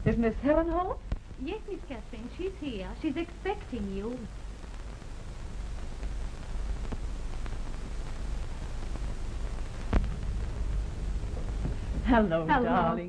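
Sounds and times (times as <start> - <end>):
film soundtrack hiss and hum: 0.0 - 13.0.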